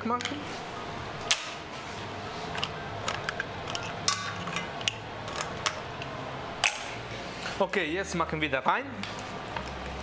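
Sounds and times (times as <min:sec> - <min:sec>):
low steady hum: 0:00.0 - 0:10.0
metal utensils clinking: 0:03.1 - 0:05.8.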